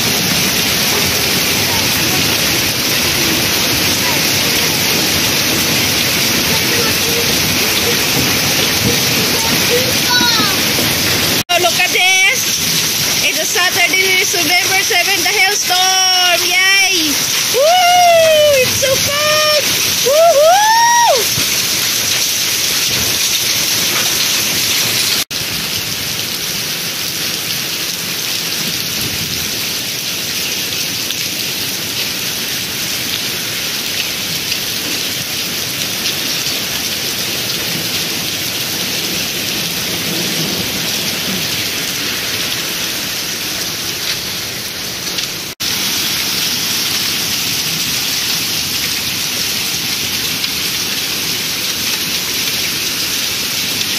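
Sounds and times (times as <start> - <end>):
hail and heavy rain: 0.0 - 53.9.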